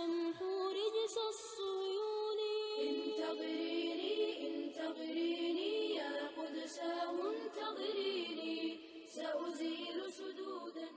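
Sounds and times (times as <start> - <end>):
layered voices chanting: 2.7 - 10.9.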